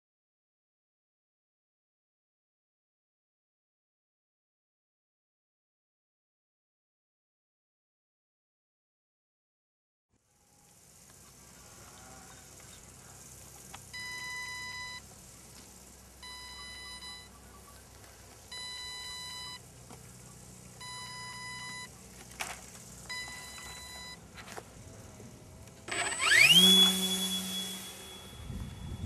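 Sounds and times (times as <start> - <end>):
electronic beeps: 14.0 - 15.0, 16.2 - 17.8, 18.5 - 19.6, 20.8 - 21.9, 23.1 - 24.2, 26.0 - 29.0
electric motor whine: 18.6 - 29.0.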